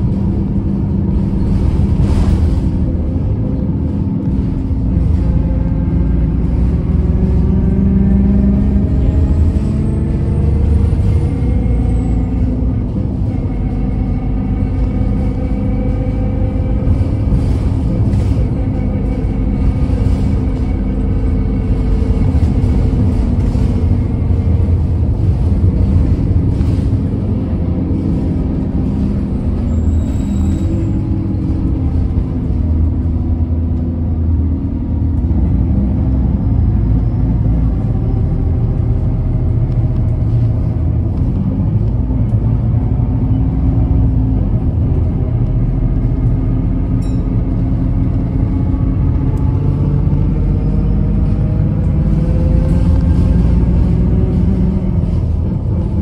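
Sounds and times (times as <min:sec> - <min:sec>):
bus engine drone: 0:00.0 - 0:56.0
road rumble: 0:00.0 - 0:56.0
high squeal: 0:29.6 - 0:31.5.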